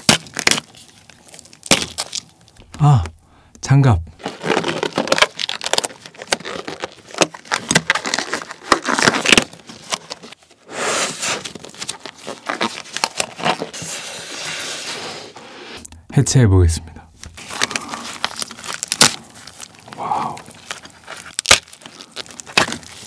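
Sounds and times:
disposable gloves crinkling and clicking: 0:00.0 - 0:03.2, 0:04.2 - 0:10.6, 0:11.4 - 0:14.0, 0:17.2 - 0:23.0.

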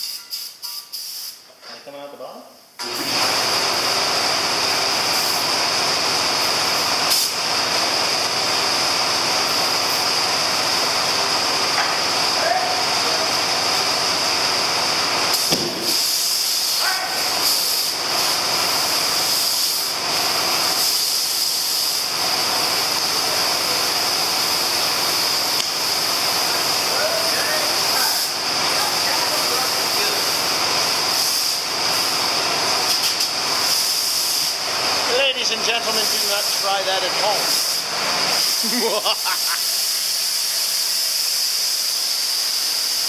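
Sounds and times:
compressed air hissing: 0:00.0 - 0:01.5, 0:04.7 - 0:05.5, 0:06.3 - 0:07.4, 0:15.0 - 0:43.0
thump of flame igniting: 0:15.4 - 0:16.1.

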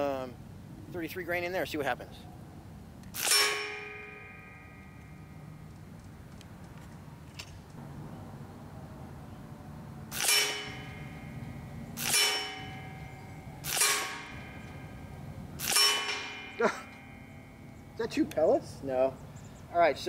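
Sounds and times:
air rifle shots with metallic ring: 0:03.2 - 0:05.6, 0:10.1 - 0:18.0.

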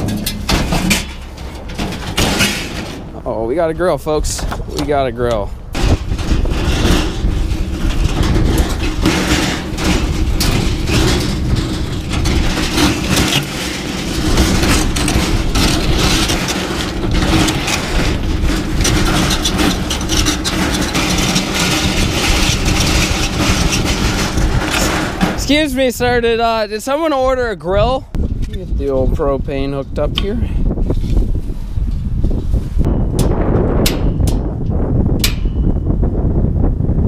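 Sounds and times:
metal grill rattling: 0:00.0 - 0:26.2
wheels rumbling on ice: 0:00.0 - 0:27.1.

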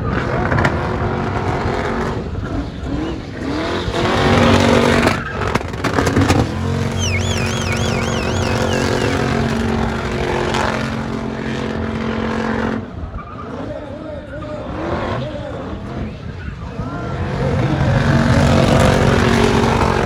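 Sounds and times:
car engine revving: 0:00.0 - 0:20.0
tires spinning and scrubbing: 0:00.0 - 0:20.0
high warbling squeal: 0:02.5 - 0:13.6.

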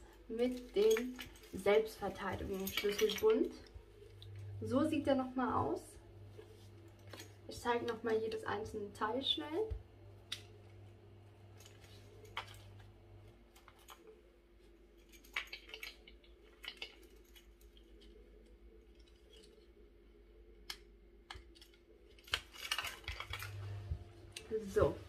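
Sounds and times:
metal rings clinking: 0:00.3 - 0:04.6, 0:14.9 - 0:19.7.

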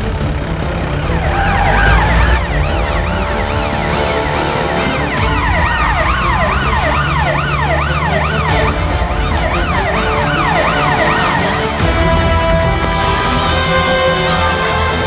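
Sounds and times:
background music: 0:00.0 - 0:15.0
police siren wailing: 0:00.9 - 0:15.0.

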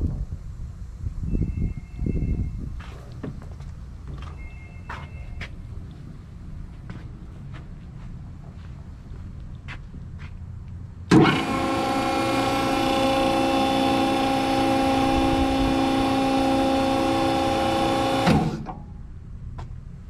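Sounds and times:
hydraulic unit clunk: 0:11.1 - 0:11.8, 0:17.2 - 0:18.9
hydraulic motor and pump whining: 0:11.1 - 0:18.9.

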